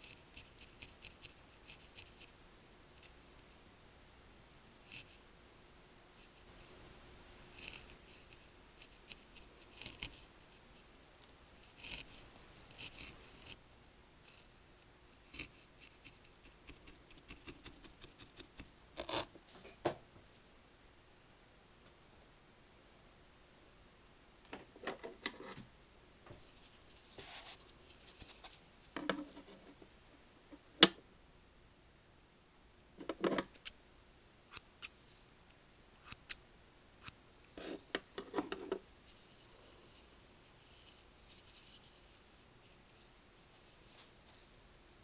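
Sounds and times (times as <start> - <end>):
scissors snipping wool: 36.0 - 36.4.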